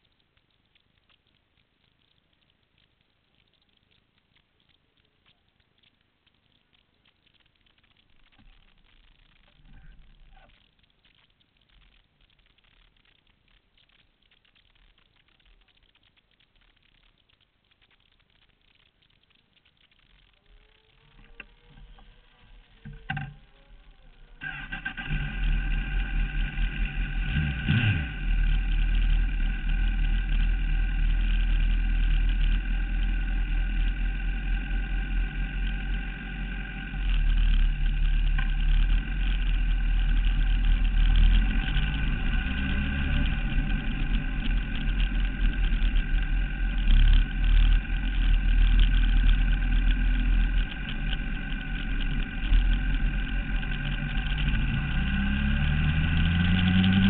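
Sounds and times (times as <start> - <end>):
motorcycle engine running: 22.6 - 57.0.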